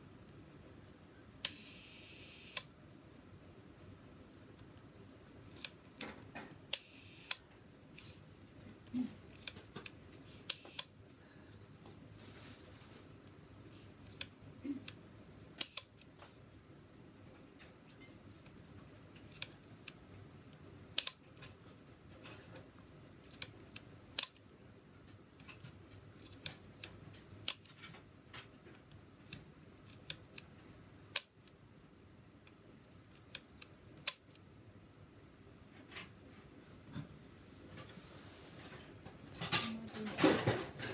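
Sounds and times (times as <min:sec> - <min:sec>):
camera shutter clicks: 0:01.4 - 0:02.7, 0:06.7 - 0:07.4, 0:10.5 - 0:10.9
shutter buzz: 0:01.4 - 0:02.7, 0:06.7 - 0:07.4, 0:10.5 - 0:10.9.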